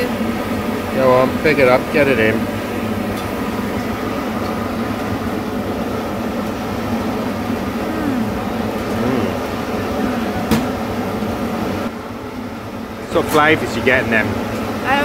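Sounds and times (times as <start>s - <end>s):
machinery hum: 0.0s - 15.0s
traffic hum: 2.4s - 11.9s.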